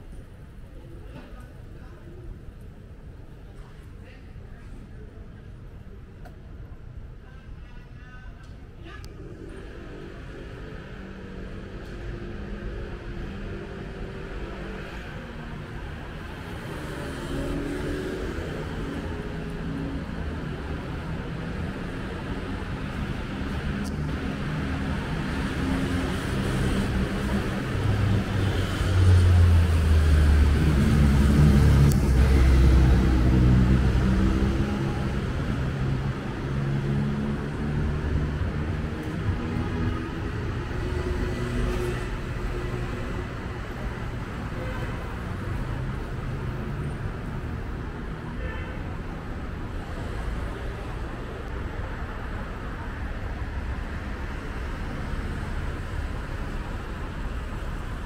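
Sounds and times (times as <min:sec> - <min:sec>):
road vehicles passing: 0:08.5 - 0:58.0.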